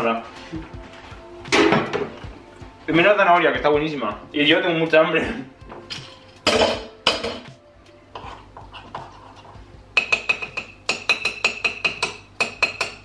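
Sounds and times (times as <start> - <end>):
spoon scraping batter: 8.2 - 9.6.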